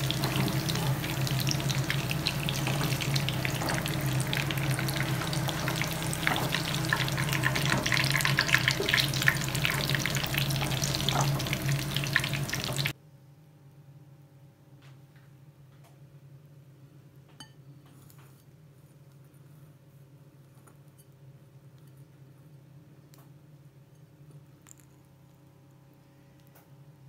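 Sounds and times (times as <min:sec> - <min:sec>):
low hum: 0:00.0 - 0:12.9
oil sizzling in a pan: 0:00.0 - 0:13.0.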